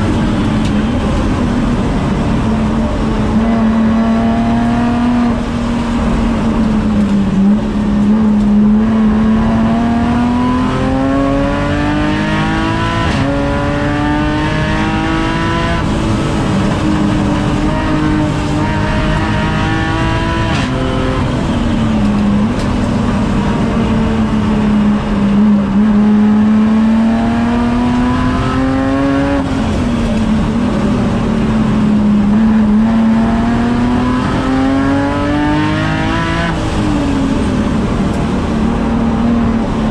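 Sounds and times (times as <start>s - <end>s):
race car engine revving: 0.0s - 39.9s.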